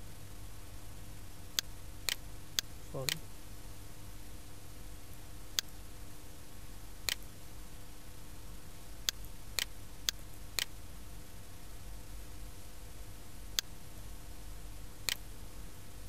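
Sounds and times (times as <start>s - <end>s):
low electrical hum: 0.0s - 16.0s
computer mouse clicking: 1.6s - 3.2s.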